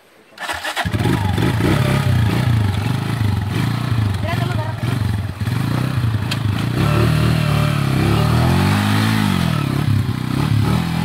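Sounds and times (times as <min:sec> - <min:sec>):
motorcycle engine revving: 0:00.4 - 0:11.0.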